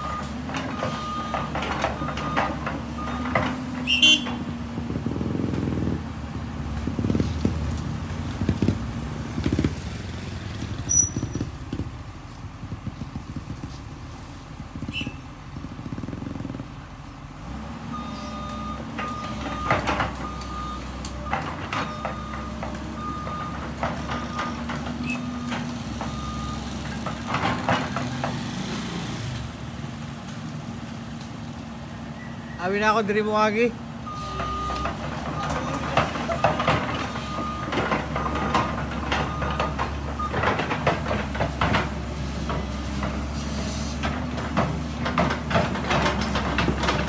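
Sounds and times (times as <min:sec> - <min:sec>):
excavator diesel engine: 0:00.0 - 0:47.0
motorcycles passing: 0:03.2 - 0:16.9.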